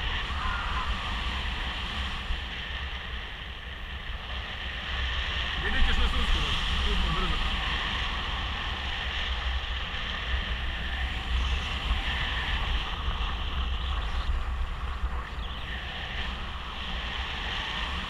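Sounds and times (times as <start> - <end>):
wind rushing over microphone: 0.0 - 18.0.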